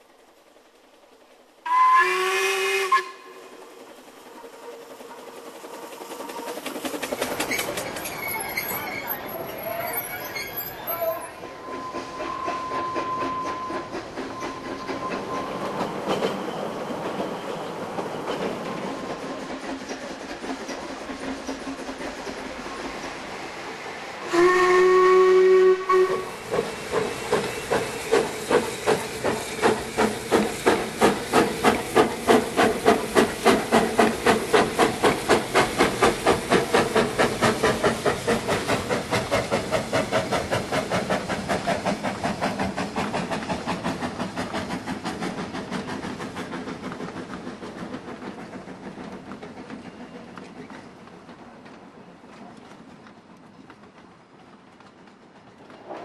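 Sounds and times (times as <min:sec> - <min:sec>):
steam locomotive exhaust beats: 0:00.0 - 0:56.0
steam locomotive whistle: 0:01.6 - 0:03.5, 0:08.3 - 0:15.8, 0:24.2 - 0:26.4.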